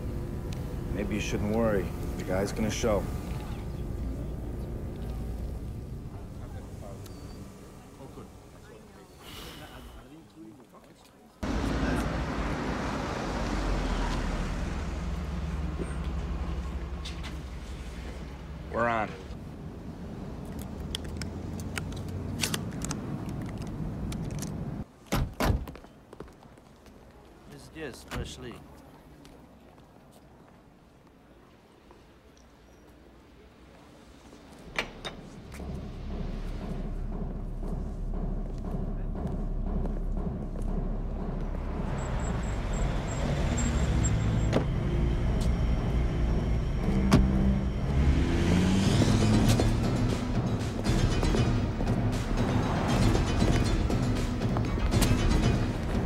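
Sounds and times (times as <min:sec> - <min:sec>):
street traffic: 0:00.0 - 0:56.0
car interior rumble: 0:34.9 - 0:56.0.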